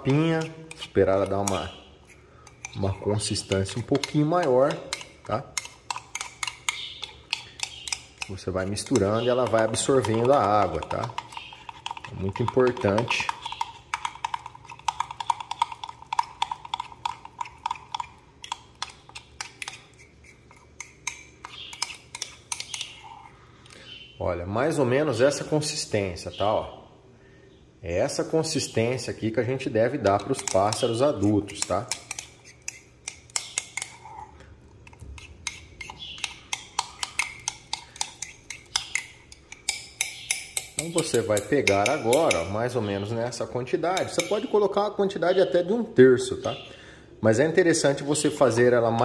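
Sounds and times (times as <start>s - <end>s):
utensil clicking against container: 0.0s - 23.8s, 30.0s - 34.2s, 34.8s - 42.5s.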